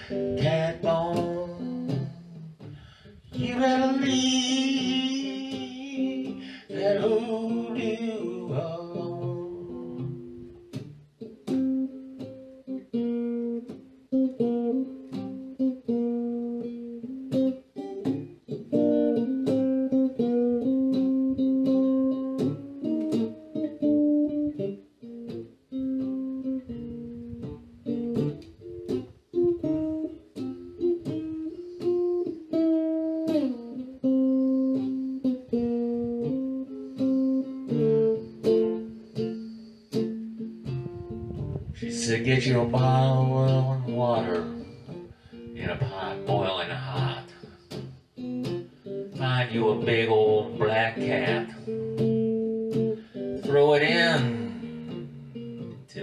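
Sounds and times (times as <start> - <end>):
electric guitar blues playing: 0.0 - 56.0.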